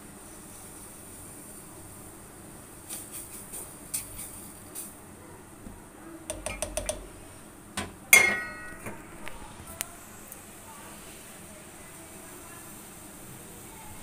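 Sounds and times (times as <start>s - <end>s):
spoon clanking on pot: 6.3s - 7.2s, 7.8s - 9.3s.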